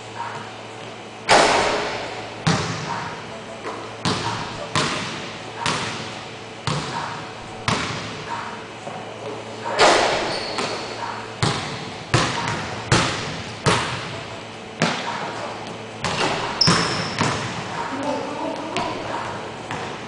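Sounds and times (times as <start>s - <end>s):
basketball bouncing on hardwood floor: 4.0s - 7.0s, 7.6s - 8.1s, 11.4s - 14.1s, 16.0s - 17.6s
short high squeaks: 10.2s - 10.8s.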